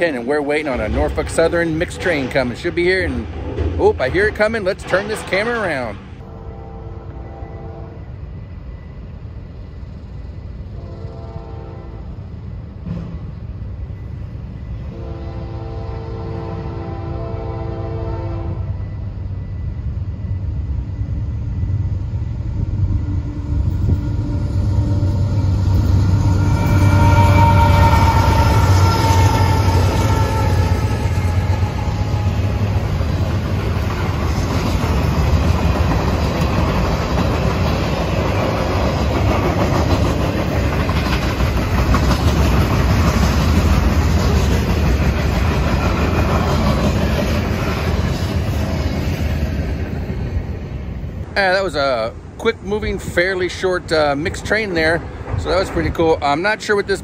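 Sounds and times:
train wheels rolling on rails: 0:00.0 - 0:06.3, 0:12.1 - 0:15.8, 0:17.0 - 0:57.0
train horn: 0:06.2 - 0:08.1, 0:10.8 - 0:12.3, 0:14.9 - 0:18.8, 0:23.2 - 0:32.6
locomotive engine rumble: 0:17.0 - 0:57.0.

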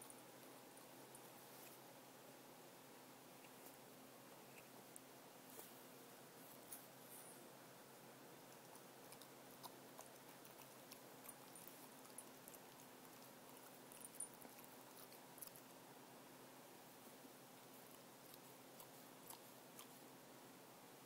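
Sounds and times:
low steady hum: 0:00.0 - 0:21.0
dog licking and nibbling: 0:08.4 - 0:15.8, 0:17.6 - 0:20.1.

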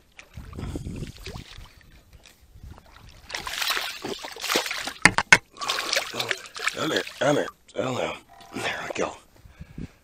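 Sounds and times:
fish thrashing in water: 0:02.7 - 0:07.4.

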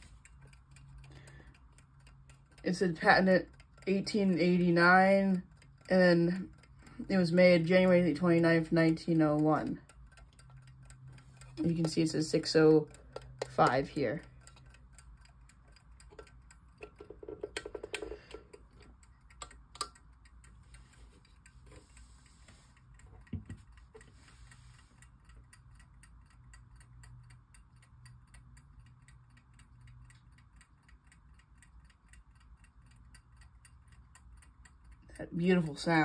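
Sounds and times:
alarm clock ticking: 0:00.0 - 0:36.0
clock being handled: 0:16.1 - 0:20.0.

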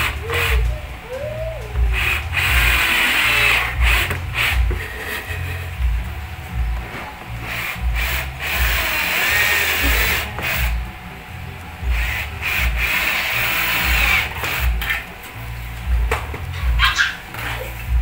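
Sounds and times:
music with low beat: 0:00.0 - 0:18.0
cordless drill boring into wood: 0:01.9 - 0:04.7, 0:07.4 - 0:10.8, 0:11.9 - 0:14.8.

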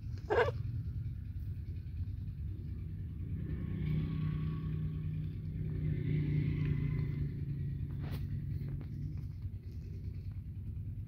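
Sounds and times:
kitten growling: 0:00.0 - 0:00.7.

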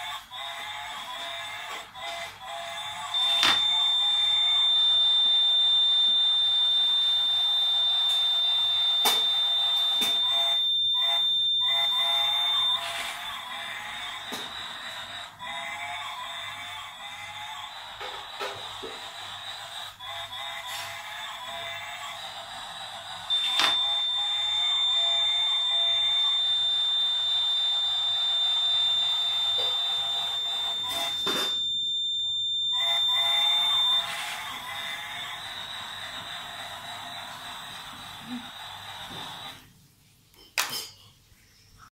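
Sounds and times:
toy train motor whirring: 0:00.0 - 0:39.7
railway crossing warning buzzer: 0:03.2 - 0:13.1, 0:23.3 - 0:36.2.

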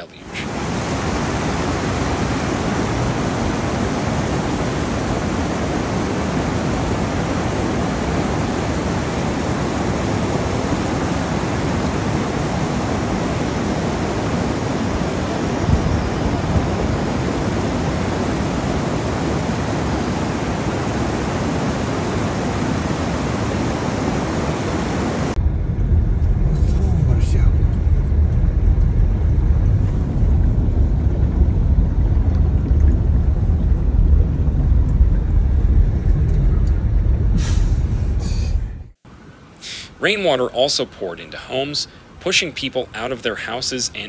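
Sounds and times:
floodwater rushing: 0:00.0 - 0:25.4.

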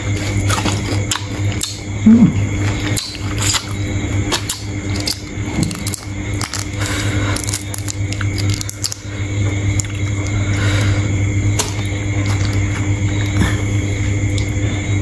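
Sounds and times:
person chewing wetly: 0:00.0 - 0:01.9, 0:02.5 - 0:09.1, 0:09.7 - 0:10.4
steady low hum: 0:00.0 - 0:15.0.

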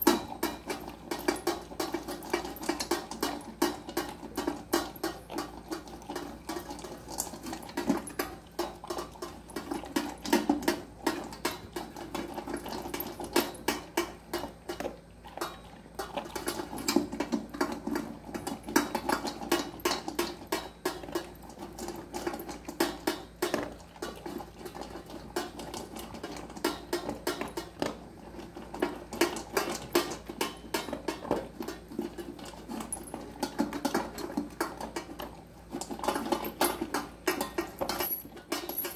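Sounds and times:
metal bowl and chain collar clinking: 0:00.0 - 0:10.8, 0:12.0 - 0:13.8, 0:32.4 - 0:33.6, 0:36.0 - 0:38.9
dog chewing and crunching fish: 0:00.0 - 0:38.9.

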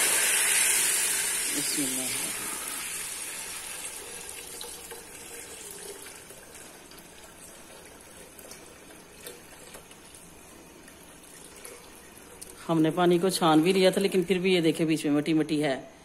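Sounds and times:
steam hissing: 0:00.0 - 0:03.8
syrup pouring and splashing: 0:00.0 - 0:12.7.

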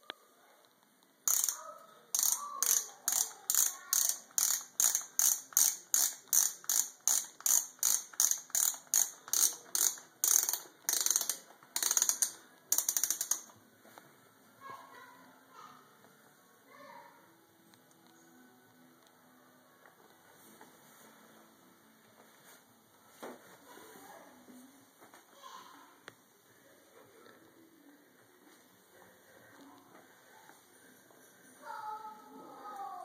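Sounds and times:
lacing dial ratcheting clicks: 0:01.3 - 0:01.6, 0:02.2 - 0:13.6.

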